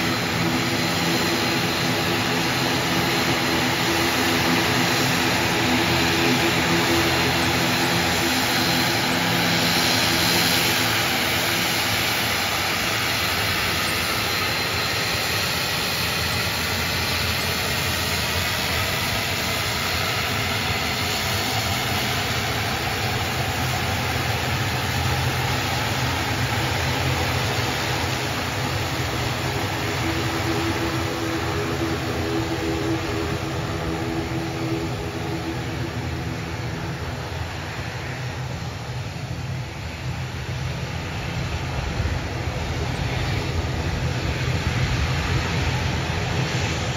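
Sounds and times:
turboprop engines running: 0.0 - 46.9.

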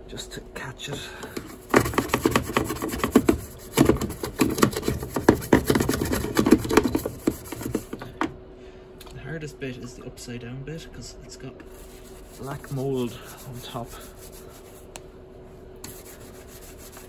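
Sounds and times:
brush scrubbing plastic: 1.4 - 8.0, 11.7 - 14.9, 15.8 - 17.0.

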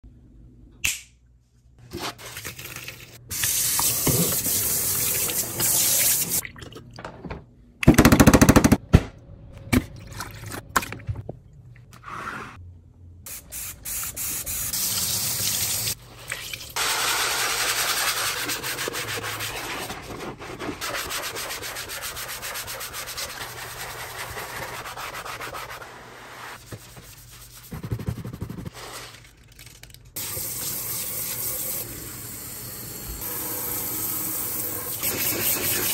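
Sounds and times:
tap water running: 2.4 - 6.5, 14.0 - 18.6, 30.2 - 35.9
sponge scrubbing a sink: 16.8 - 29.2, 34.4 - 35.9.

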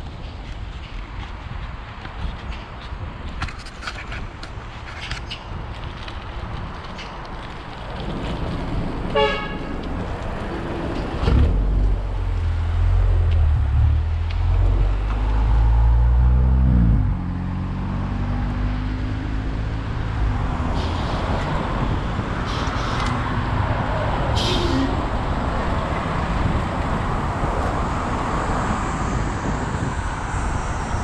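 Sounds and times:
traffic noise: 0.0 - 31.0
car horn toot: 9.1 - 9.6.

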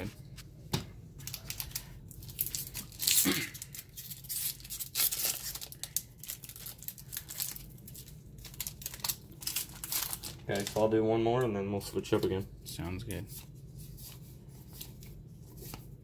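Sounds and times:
foil wrapper tearing and crinkling: 1.3 - 10.9.

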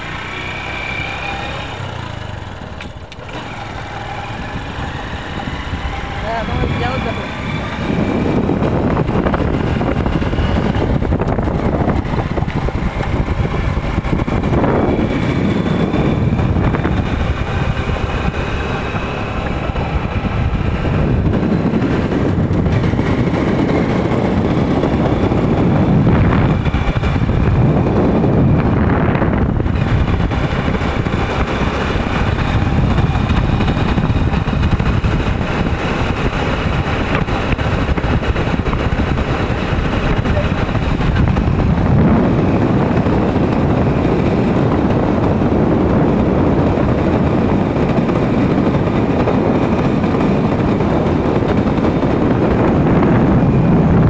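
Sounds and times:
motorcycle engine running: 0.0 - 54.0
wind buffeting on microphone: 0.0 - 54.0.

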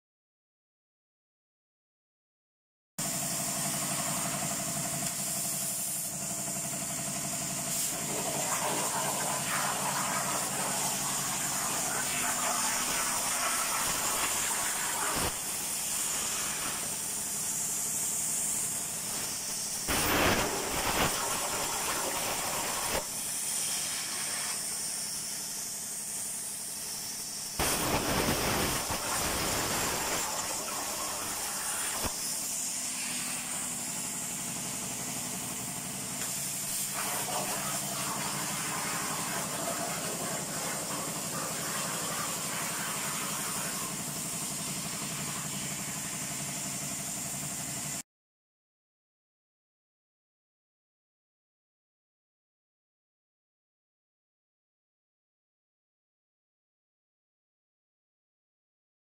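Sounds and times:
plasma cutter arc hissing: 3.1 - 48.0.

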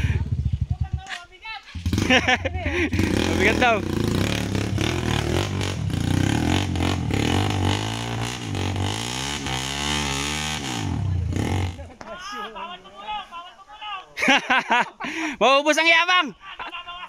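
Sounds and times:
dirt bike engine revving: 1.8 - 12.0.

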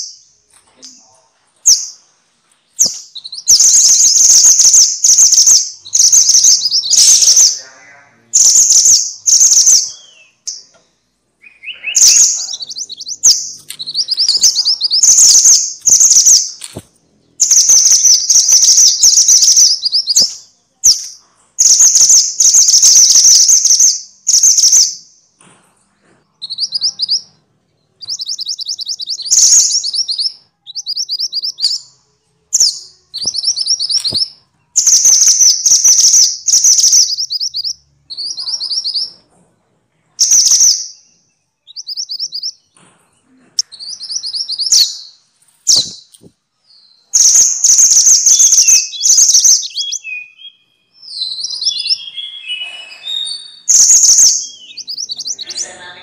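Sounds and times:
bird calling with rolling notes: 11.4 - 20.3, 47.2 - 56.0.

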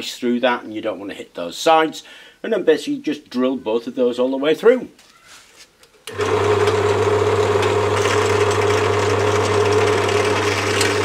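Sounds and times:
drill press drilling steel: 6.1 - 11.0.

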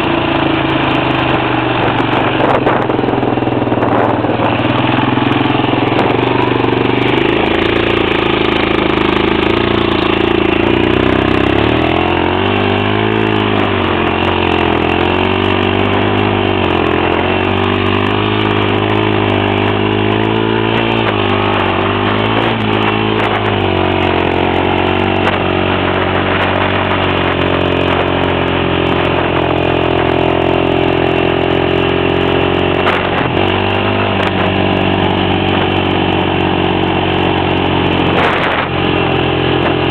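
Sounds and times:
atv engine revving: 0.0 - 39.9.

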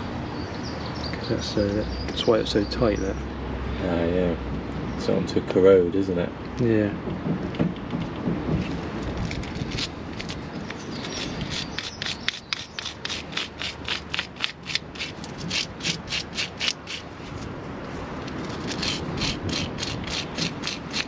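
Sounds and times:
wire brush scrubbing metal: 10.9 - 17.2, 18.4 - 21.0.

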